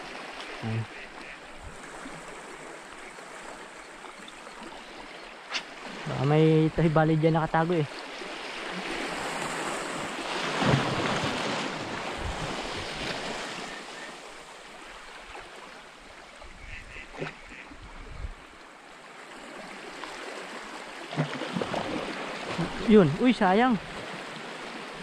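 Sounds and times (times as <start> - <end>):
waves on rocky shore: 0.0 - 25.0
wind noise: 17.8 - 18.4.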